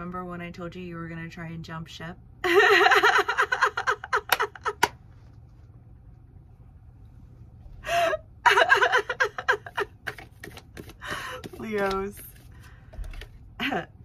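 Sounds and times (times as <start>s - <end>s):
woman laughing: 2.4s - 4.9s, 7.9s - 10.4s, 13.6s - 14.0s.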